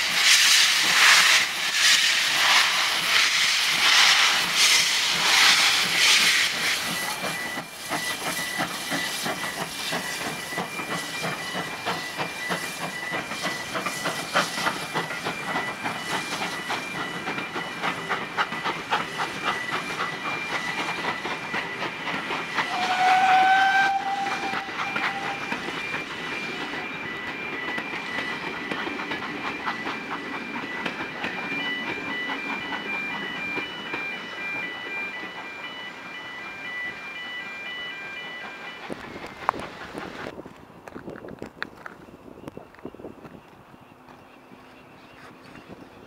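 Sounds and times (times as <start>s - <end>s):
steam train rumble: 0.0s - 46.0s
level-crossing alarm: 4.9s - 40.3s
steam locomotive whistle: 19.9s - 26.5s
wheels clicking over rail joints: 38.7s - 46.0s.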